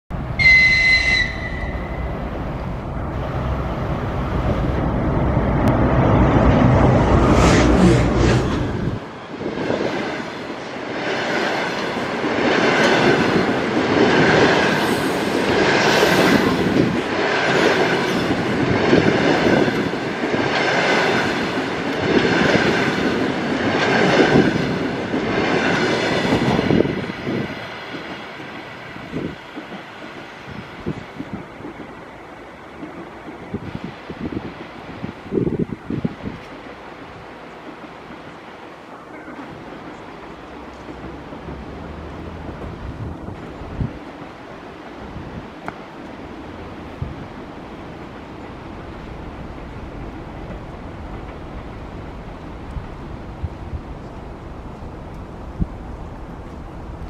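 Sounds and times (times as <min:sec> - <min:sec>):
electric locomotive rumbling past: 0:00.1 - 0:57.0
train wheels beating over rails: 0:00.1 - 0:57.0
high whistle: 0:00.4 - 0:02.1.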